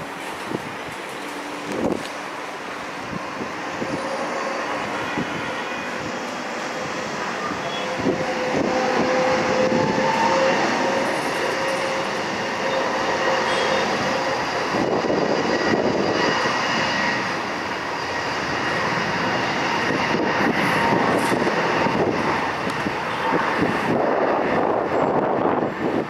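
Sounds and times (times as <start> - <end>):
jet engines rumbling and whining: 0.0 - 26.0.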